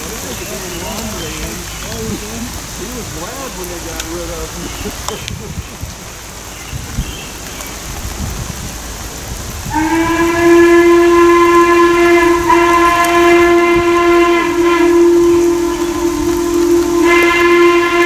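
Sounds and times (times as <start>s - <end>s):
steam locomotive whistle blast: 9.7s - 18.0s.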